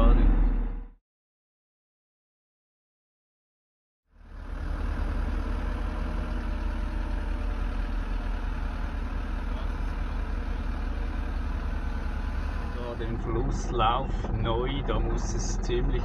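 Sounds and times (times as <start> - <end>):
truck diesel engine running: 4.1 - 16.0.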